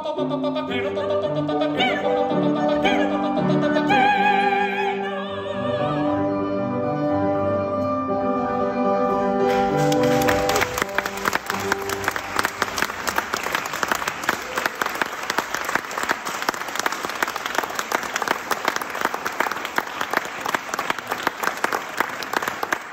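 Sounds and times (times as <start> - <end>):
audience applauding: 9.4 - 22.9
sharp nearby claps: 9.5 - 22.9.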